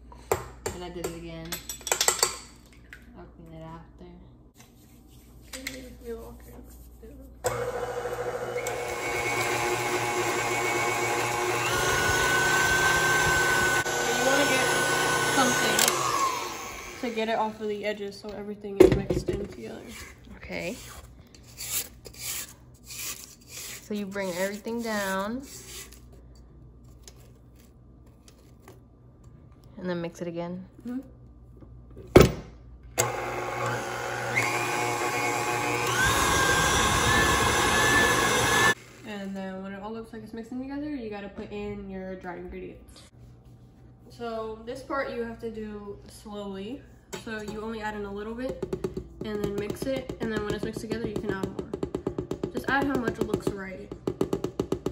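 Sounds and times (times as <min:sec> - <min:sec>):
stand mixer motor hum: 0:07.5 - 0:17.1, 0:33.0 - 0:38.8
beater turning through dough: 0:07.5 - 0:17.5, 0:33.0 - 0:38.8.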